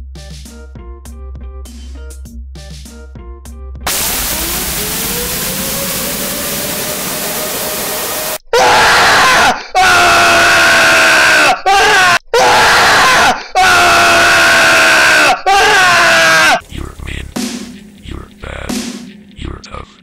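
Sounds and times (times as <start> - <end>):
loud rushing noise: 3.9 - 8.4
man screaming in pain: 8.5 - 16.6.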